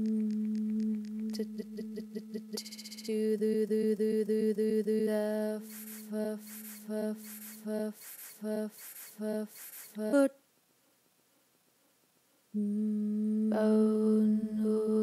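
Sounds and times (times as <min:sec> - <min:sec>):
low electronic drone: 0:00.0 - 0:05.0
higher fluttering electronic tone: 0:00.3 - 0:10.2.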